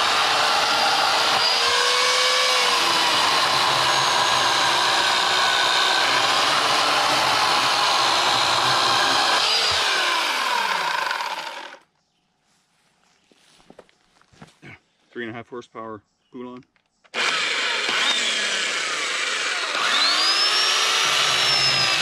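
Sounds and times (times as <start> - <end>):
electric chainsaw motor whine: 0.0 - 11.8, 17.1 - 22.0.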